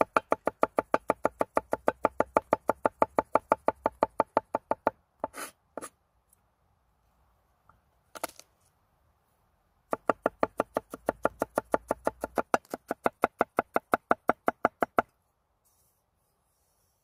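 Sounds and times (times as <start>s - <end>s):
knife chopping on wooden board: 9.9s - 15.0s.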